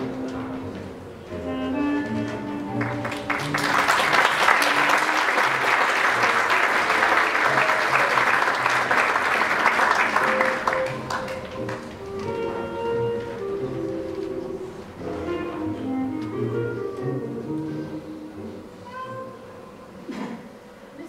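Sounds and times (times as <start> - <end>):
music playing: 0.0 - 20.1
audience applauding: 2.7 - 12.4.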